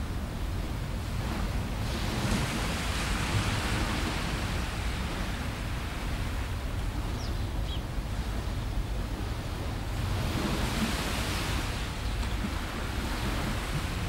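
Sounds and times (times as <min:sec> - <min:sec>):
small waves washing onto beach: 0:00.0 - 0:14.0
wind rumbling on microphone: 0:00.0 - 0:14.0.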